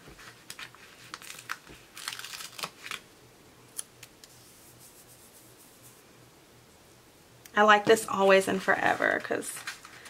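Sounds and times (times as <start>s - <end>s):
paper crinkling rustles: 0.0s - 3.0s, 8.5s - 10.0s.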